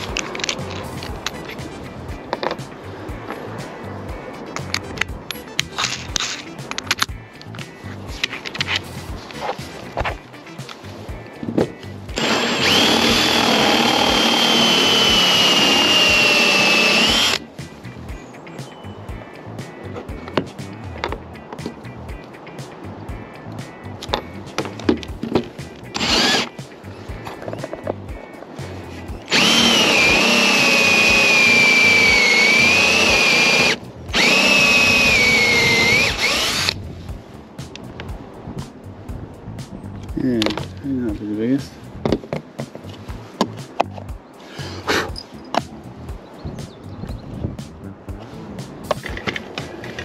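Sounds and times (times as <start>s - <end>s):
cordless drill whining: 12.2s - 17.4s, 26.0s - 26.5s, 29.3s - 36.8s.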